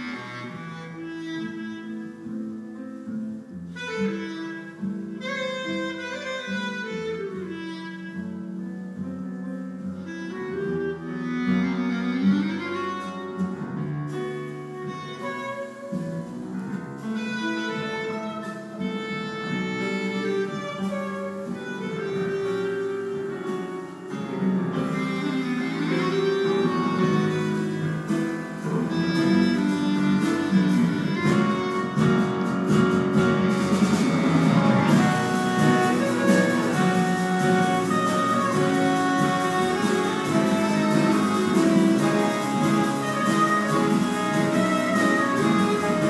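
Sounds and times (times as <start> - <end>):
jazz ensemble playing: 0.0 - 46.0.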